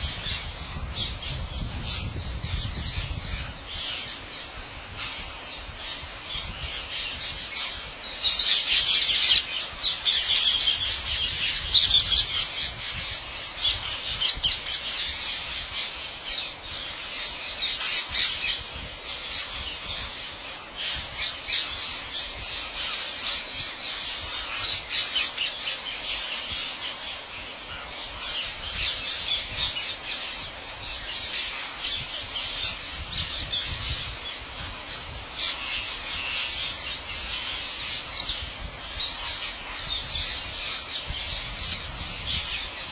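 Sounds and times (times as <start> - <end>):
flock of parakeets screeching: 0.0 - 42.9.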